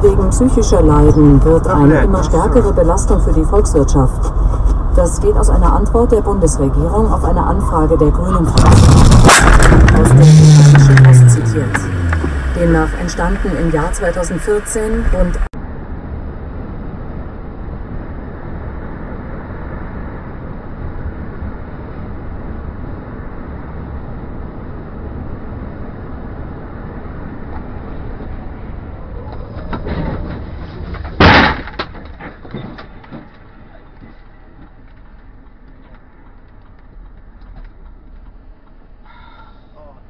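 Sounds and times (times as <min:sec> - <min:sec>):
tyre and road noise inside car: 0:00.0 - 0:15.6, 0:22.4 - 0:39.4
loud crash bang: 0:08.5 - 0:12.6, 0:31.1 - 0:31.9
debris knocking on road: 0:29.7 - 0:33.5.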